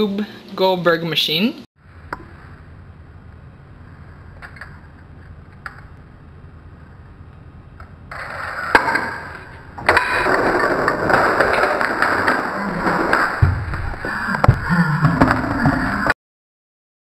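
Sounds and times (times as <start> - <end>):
toy wheels rolling on wood: 8.2 - 16.1.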